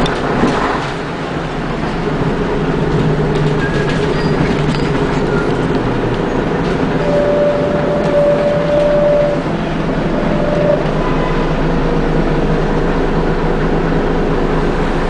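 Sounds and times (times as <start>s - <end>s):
bus body rattles: 0.0s - 15.0s
bus engine drone: 0.0s - 15.0s
steady whine: 5.4s - 15.0s.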